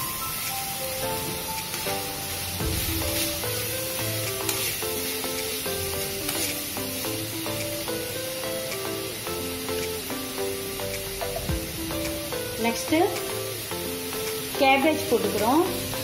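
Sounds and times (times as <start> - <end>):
background music: 0.0 - 16.0
vegetables sizzling in oil: 0.0 - 16.0
metal spoon scraping wok: 4.3 - 6.7.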